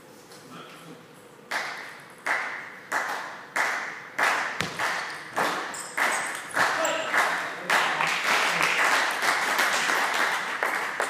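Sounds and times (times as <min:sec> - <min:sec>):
table tennis ball hits: 0:04.6 - 0:06.6.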